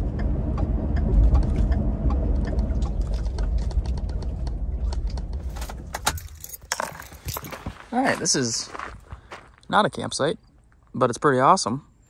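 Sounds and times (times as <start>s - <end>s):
engine and road rumble in cab: 0.0s - 8.0s.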